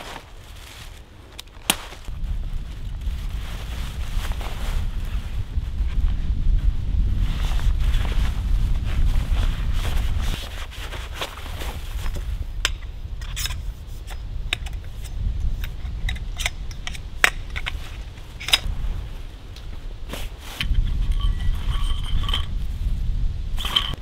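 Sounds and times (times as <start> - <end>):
canvas rustling: 0.0 - 12.6, 17.7 - 21.8
wind rumbling on microphone: 0.0 - 24.0
metal poles clinking: 12.6 - 18.7, 20.6 - 22.6, 23.6 - 24.0.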